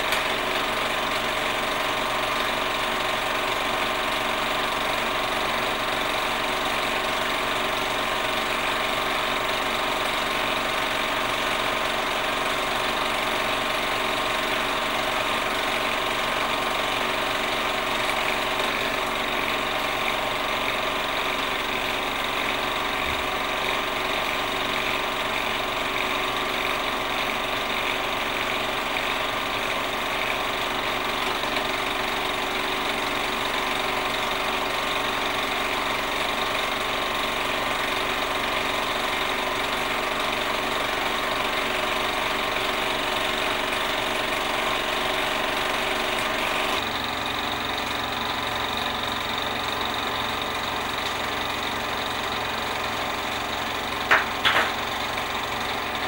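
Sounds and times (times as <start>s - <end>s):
machine whirring and clattering: 0.0s - 33.8s, 53.6s - 56.0s.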